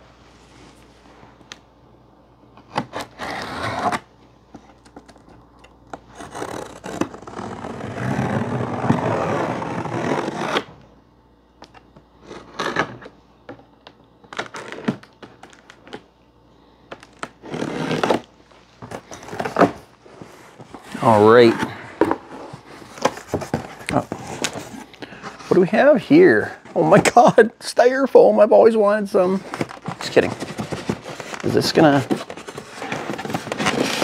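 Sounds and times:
cardboard box scraping and rustling: 0:29.4 - 0:34.0.

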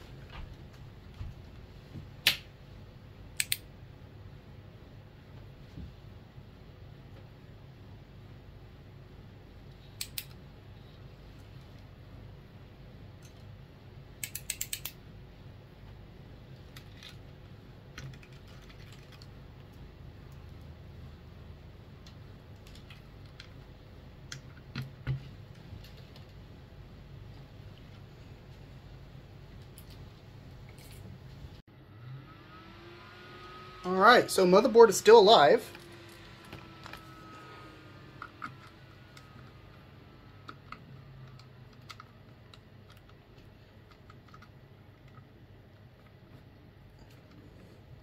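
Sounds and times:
steady low hum: 0:00.0 - 0:48.0
computer keyboard clicking: 0:14.2 - 0:15.0.

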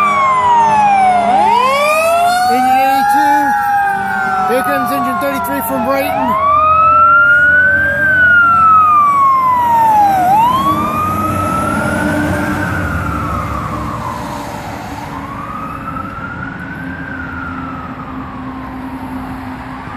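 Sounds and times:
fire engine siren wailing: 0:00.0 - 0:19.9
truck engine rumble: 0:00.0 - 0:19.9.

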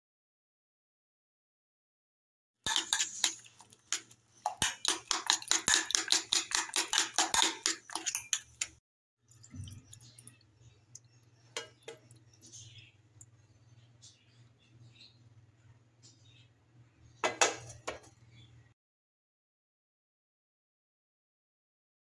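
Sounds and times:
whisk clinking against metal bowl: 0:02.7 - 0:08.7.

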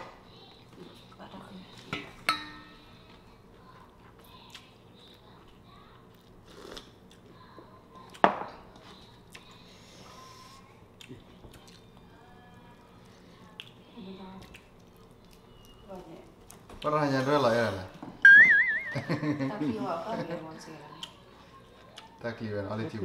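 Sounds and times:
faint chewing: 0:03.0 - 0:17.0, 0:20.9 - 0:22.2.

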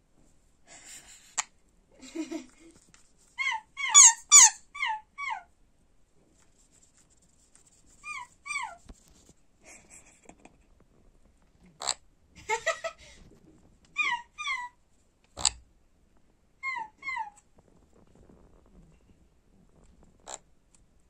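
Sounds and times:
parrot squeaky chirps: 0:03.4 - 0:05.4, 0:08.0 - 0:08.8, 0:14.0 - 0:14.8.

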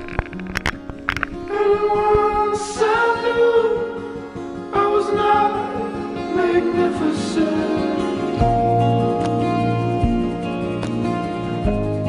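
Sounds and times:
slow song with vocals: 0:01.3 - 0:12.0.

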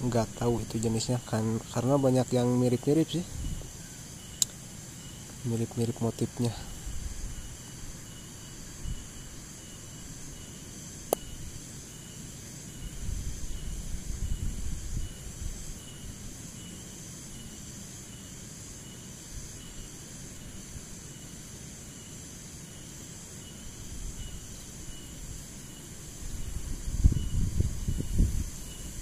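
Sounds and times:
insects buzzing: 0:00.0 - 0:29.0
pulsing cricket chirp: 0:00.0 - 0:29.0
sharp click: 0:11.1 - 0:11.3.

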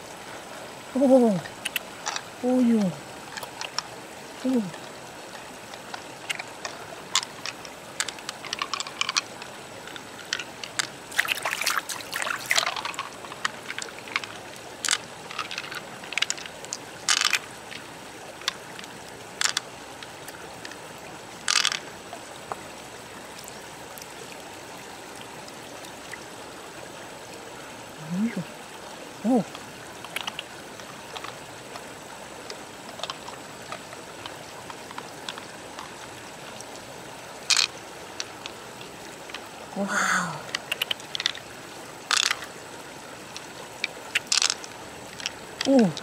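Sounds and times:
trickling stream water: 0:00.0 - 0:46.0
wet squelching of mussel flesh: 0:10.6 - 0:16.5.

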